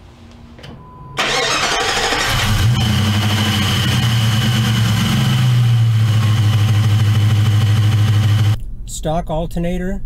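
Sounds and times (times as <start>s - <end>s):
car engine starting and idling: 1.2s - 8.6s.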